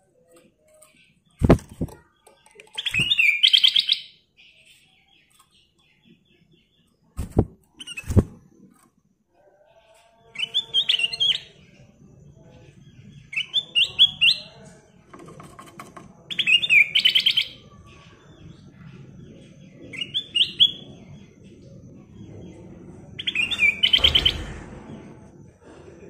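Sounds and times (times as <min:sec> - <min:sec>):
bird singing whistled notes: 0:23.2 - 0:24.5.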